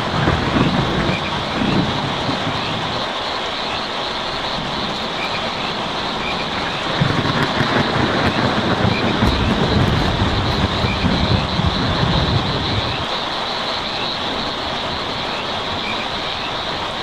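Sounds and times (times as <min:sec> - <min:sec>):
distant thunder rumble: 0:00.0 - 0:17.0
rain on a tin roof: 0:00.0 - 0:17.0.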